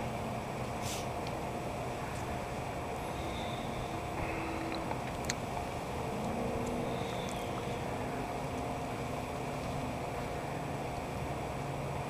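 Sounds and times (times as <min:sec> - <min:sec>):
faint constant hum: 0:00.0 - 0:12.0
outdoor background rumble: 0:00.0 - 0:12.0
faint high chirps: 0:03.0 - 0:05.0, 0:06.1 - 0:08.2.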